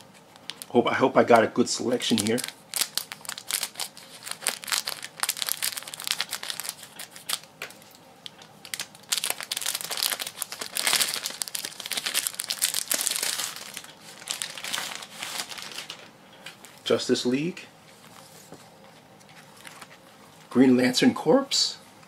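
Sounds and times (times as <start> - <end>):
plastic shrink-wrap crinkling: 0.0 - 16.9, 19.4 - 20.0.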